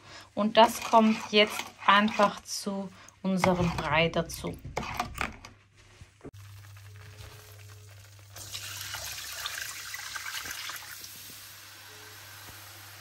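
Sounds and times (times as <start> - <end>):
liquid sizzling in hot pan: 6.3 - 13.0.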